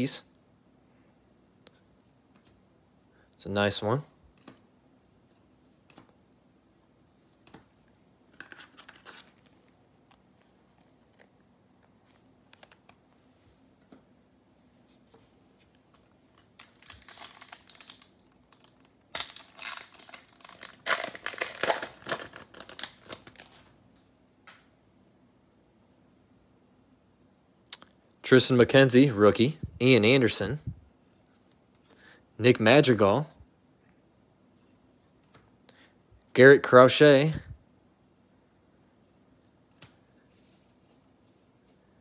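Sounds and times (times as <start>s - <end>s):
plastic wrapper crinkling and tearing: 8.4s - 9.8s, 12.1s - 13.0s, 16.3s - 23.7s.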